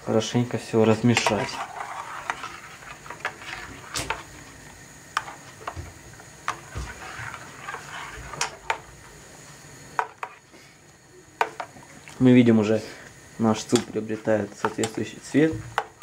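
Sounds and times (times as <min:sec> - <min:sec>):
spoon stirring liquid: 0:00.9 - 0:08.9, 0:10.0 - 0:10.5, 0:11.4 - 0:12.2.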